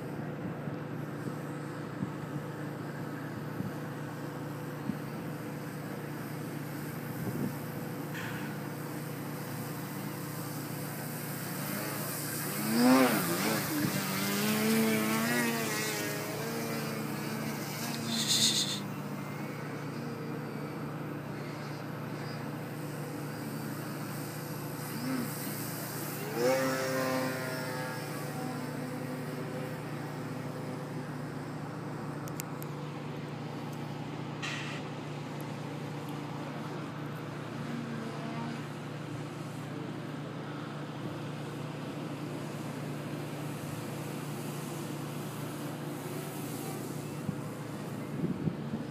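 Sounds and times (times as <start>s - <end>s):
distant road traffic drone: 0.0s - 48.9s
electric model plane motor buzzing: 5.2s - 32.5s.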